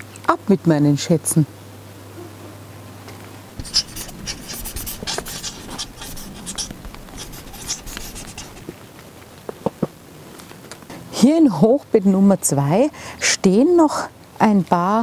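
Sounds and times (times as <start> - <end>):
clothing rustling against microphone: 3.6 - 8.7.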